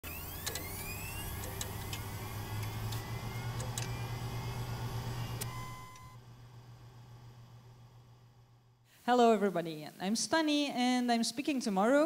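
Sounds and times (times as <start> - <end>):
clicks: 0.1 - 6.2
low electronic hum: 0.1 - 8.8.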